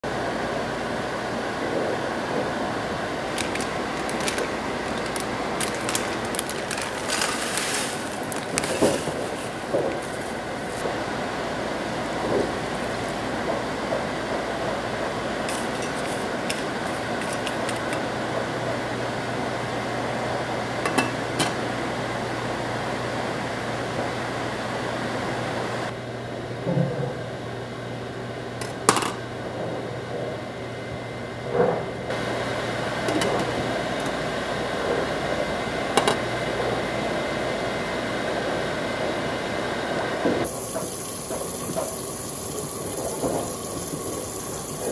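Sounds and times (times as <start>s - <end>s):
saucepan hissing on stove: 40.4s - 44.9s.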